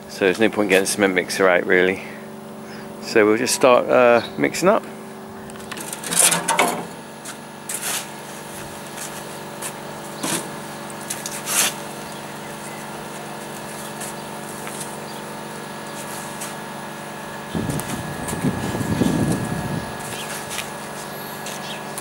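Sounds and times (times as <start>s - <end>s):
steady mechanical hum: 0.0s - 22.0s
spade scraping sand: 7.7s - 8.2s.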